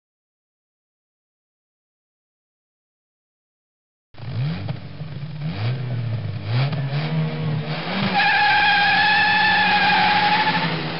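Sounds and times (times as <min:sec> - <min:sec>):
car engine revving: 0:04.2 - 0:10.9.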